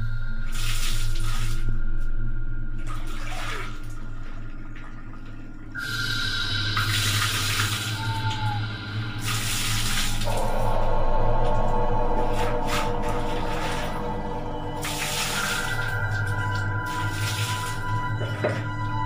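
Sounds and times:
background music drone: 0.0 - 19.0
water poured over hair: 9.2 - 10.8, 11.4 - 18.9.

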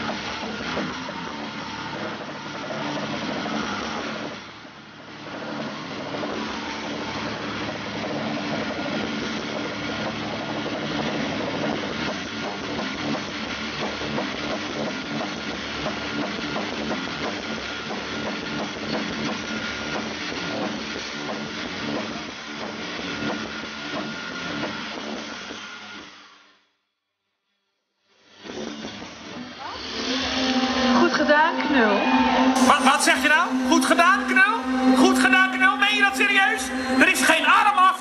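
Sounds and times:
angle grinder grinding metal: 0.0 - 26.4, 28.2 - 38.0.

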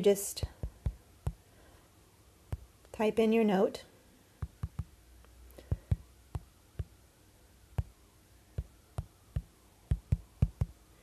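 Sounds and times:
tapping on touchscreen: 0.4 - 1.4, 4.4 - 4.9, 5.7 - 7.0, 8.6 - 10.8.

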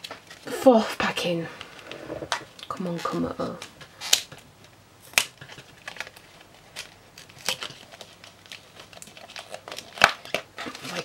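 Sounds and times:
plastic packaging crackling and tearing: 1.2 - 11.0.

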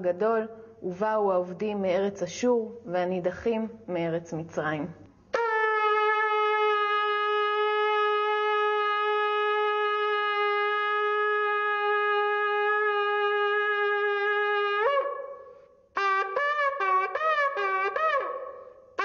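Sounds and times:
shofar long blast: 5.4 - 19.0.

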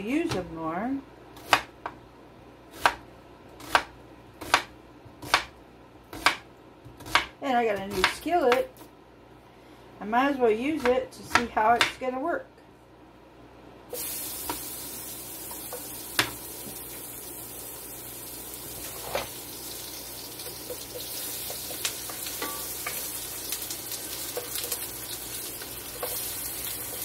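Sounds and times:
onion sizzling in oil: 13.9 - 27.0.

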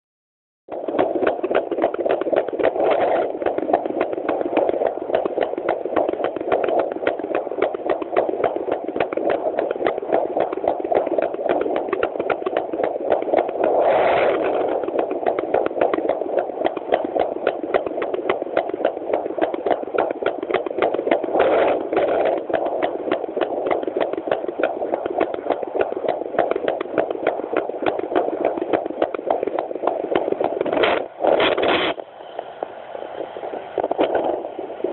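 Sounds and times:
fast heartbeat through doppler speaker: 0.7 - 32.0, 33.2 - 34.9
bursts of noise: 12.8 - 17.4.

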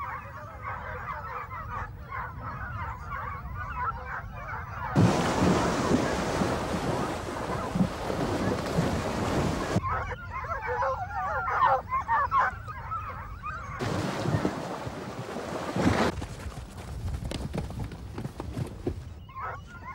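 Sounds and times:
hounds baying: 0.0 - 5.0, 6.9 - 8.6, 9.5 - 14.5, 19.2 - 19.9
horses splashing through water: 5.0 - 9.8, 13.8 - 19.1.

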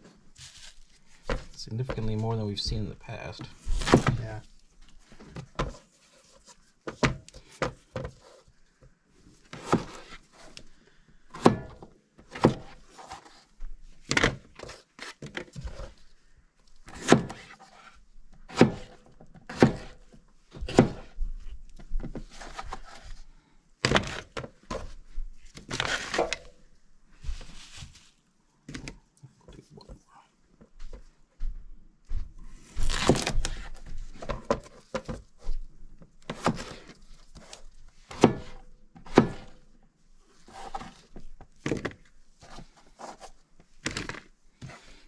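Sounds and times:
knife chopping on plastic board: 3.7 - 4.2, 9.6 - 10.1, 11.3 - 12.8, 16.9 - 17.6, 18.5 - 21.1, 36.3 - 39.6.

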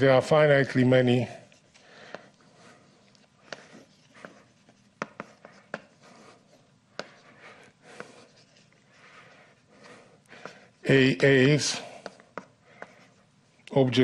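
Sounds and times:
chalk scratching on blackboard: 1.1 - 13.4
chalk tapping on board: 3.4 - 7.2, 11.9 - 13.2.

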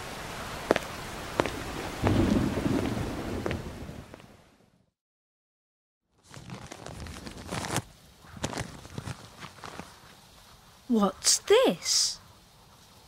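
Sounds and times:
rain: 0.0 - 4.9, 6.3 - 13.0
rustling: 6.2 - 10.6.

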